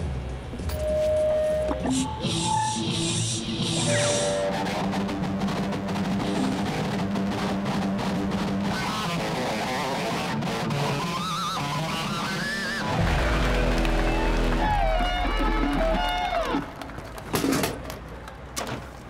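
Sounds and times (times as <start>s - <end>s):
electric guitar rock riff: 4.4s - 16.8s
deep sustained low note: 13.0s - 15.3s.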